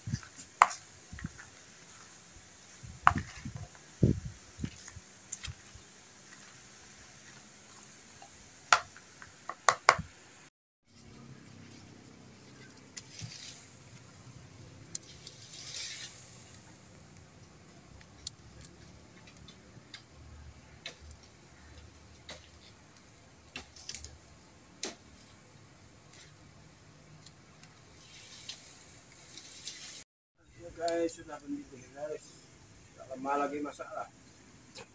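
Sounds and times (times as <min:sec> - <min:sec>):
fire crackling and popping: 0:00.0 - 0:10.2, 0:12.4 - 0:30.0.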